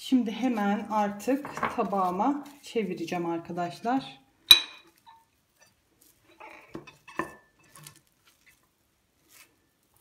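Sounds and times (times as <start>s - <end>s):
plate clinking against bowl: 4.5s - 5.2s.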